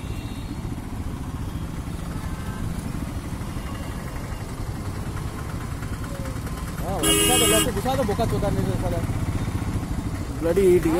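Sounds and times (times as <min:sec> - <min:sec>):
motorcycle engine running: 0:00.0 - 0:10.9.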